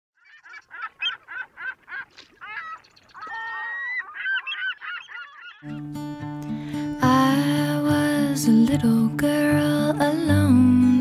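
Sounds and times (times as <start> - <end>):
gull calling: 0.2 - 5.8.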